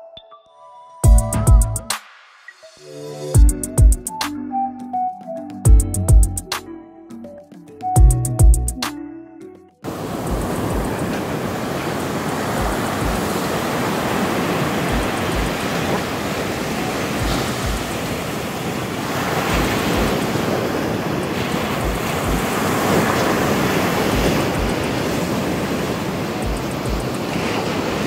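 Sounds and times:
waves breaking on beach: 9.8s - 28.0s
wind: 9.8s - 28.0s.

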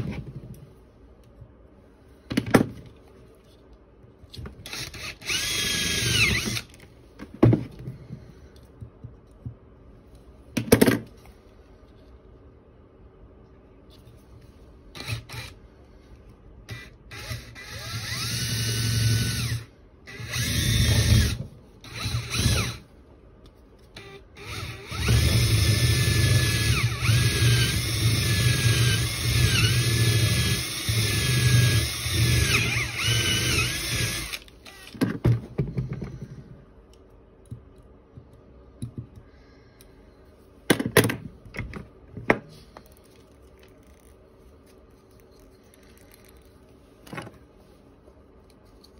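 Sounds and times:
electric drill whining: 4.6s - 6.7s, 15.0s - 15.6s, 16.7s - 22.8s, 24.0s - 35.0s.

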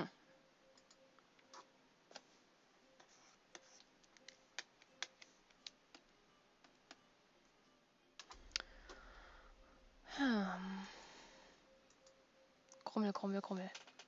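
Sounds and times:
computer mouse clicks: 0.7s - 2.3s, 3.0s - 7.0s.

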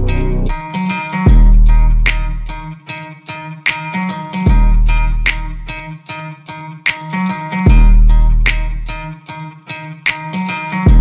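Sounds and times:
deep bass note: 0.0s - 0.6s
plucked string notes: 0.0s - 11.0s
sharp percussive hit: 1.3s - 2.7s, 5.3s - 5.7s, 6.9s - 9.0s.

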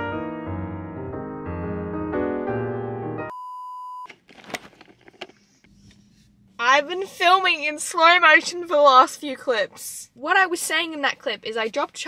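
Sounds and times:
piano music: 0.0s - 3.3s.

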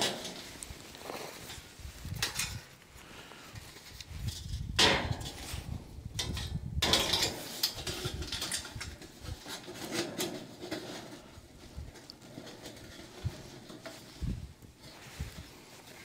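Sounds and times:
wind rumbling on microphone: 0.3s - 9.7s, 11.2s - 16.0s
metal clinks and rattles: 6.2s - 11.2s.

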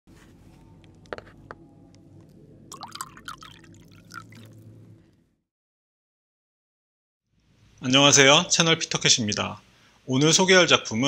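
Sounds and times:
low steady hum: 0.1s - 5.4s
liquid pouring into a cup: 2.2s - 4.8s.

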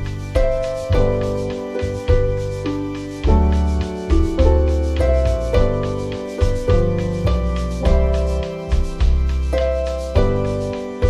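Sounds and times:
background music with deep bass: 0.0s - 11.0s.

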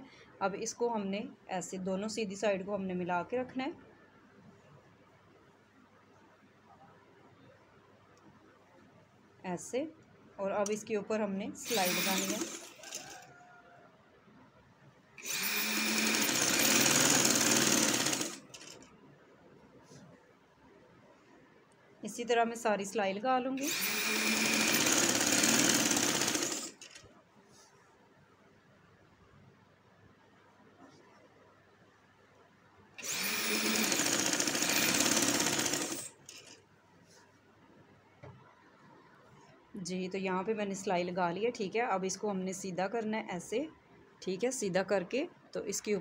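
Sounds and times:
sewing machine stitching: 11.6s - 13.2s, 15.2s - 18.8s, 23.6s - 27.0s, 33.0s - 36.6s.

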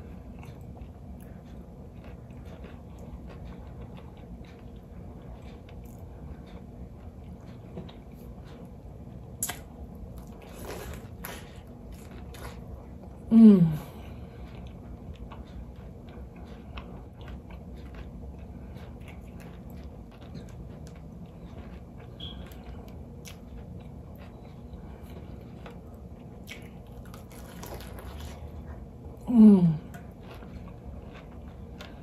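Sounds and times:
chewing and crunching: 0.0s - 32.0s
low background hum: 0.0s - 32.0s
person humming mmm: 13.2s - 14.0s, 29.2s - 30.0s.

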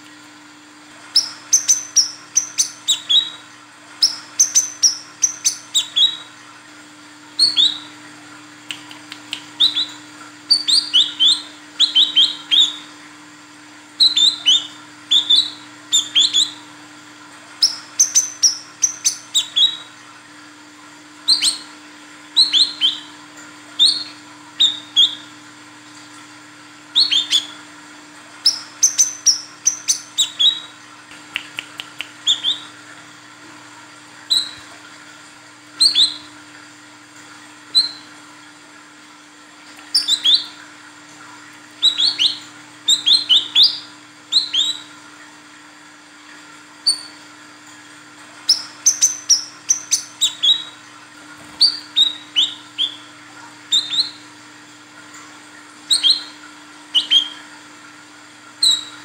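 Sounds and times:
bird chirping high calls: 1.2s - 3.4s, 4.0s - 6.3s, 7.4s - 7.9s, 9.6s - 12.9s, 14.0s - 16.6s, 17.6s - 19.9s, 21.3s - 21.7s, 22.4s - 23.1s, 23.8s - 25.3s, 27.0s - 27.6s, 28.4s - 30.8s, 32.2s - 32.8s, 35.8s - 36.3s, 37.7s - 38.1s, 39.9s - 40.5s, 41.8s - 44.9s, 48.5s - 50.8s, 51.4s - 53.1s, 53.7s - 54.2s, 55.9s - 57.4s, 58.6s - 59.0s.

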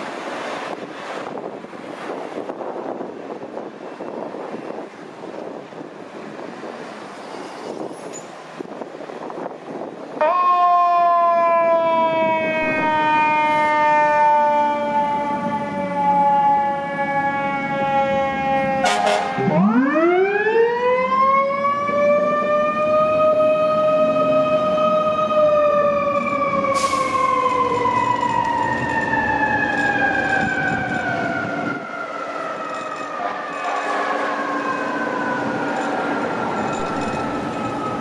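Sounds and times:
fire engine siren wailing: 9.8s - 38.0s
harsh horn blast: 18.8s - 19.6s.

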